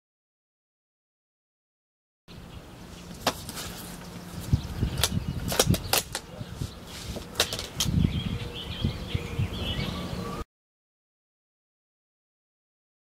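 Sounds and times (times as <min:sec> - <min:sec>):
faint bird chirps: 0:08.0 - 0:10.4.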